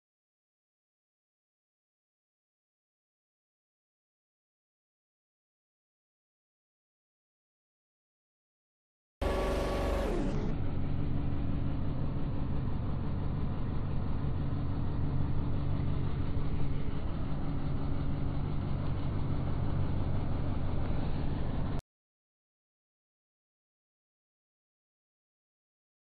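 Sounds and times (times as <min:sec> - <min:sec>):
engine idling: 0:09.2 - 0:21.8.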